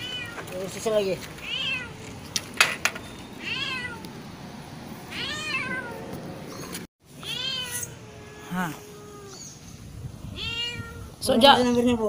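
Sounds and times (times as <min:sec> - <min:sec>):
cat meowing: 0:00.0 - 0:00.4, 0:01.4 - 0:02.0, 0:03.4 - 0:04.1, 0:05.0 - 0:06.0, 0:07.2 - 0:09.5, 0:10.3 - 0:11.2.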